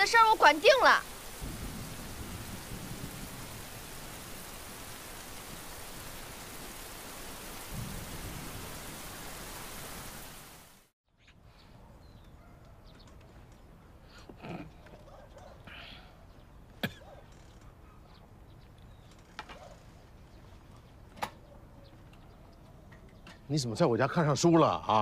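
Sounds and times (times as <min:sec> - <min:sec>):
thunder rumbles: 0:00.0 - 0:10.2
steady rain: 0:00.0 - 0:10.9.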